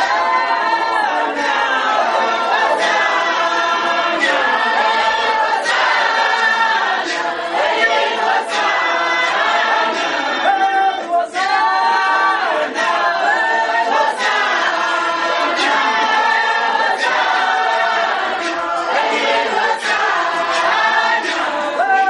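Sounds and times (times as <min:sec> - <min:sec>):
congregation singing unaccompanied: 0:00.0 - 0:22.0
sharp clap or knock beat: 0:05.7 - 0:07.4, 0:14.2 - 0:22.0.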